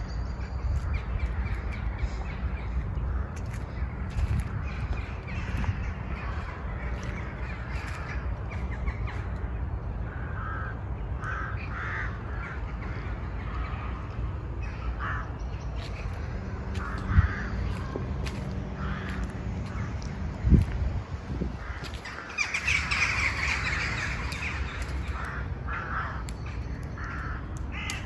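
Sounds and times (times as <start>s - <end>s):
birds calling: 0.0s - 28.0s
steady low rumble: 0.0s - 28.0s.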